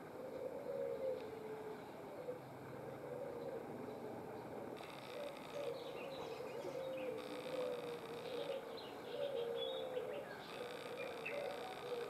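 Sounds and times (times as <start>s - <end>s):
bird chirping: 4.8s - 12.0s.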